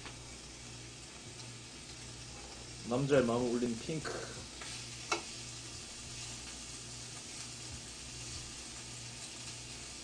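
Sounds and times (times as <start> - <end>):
pork sizzling on grill: 0.0 - 10.0.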